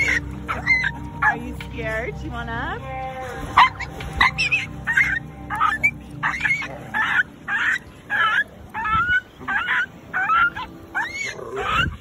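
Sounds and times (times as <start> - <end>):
small dog yapping: 0.0 - 1.4, 3.6 - 12.0.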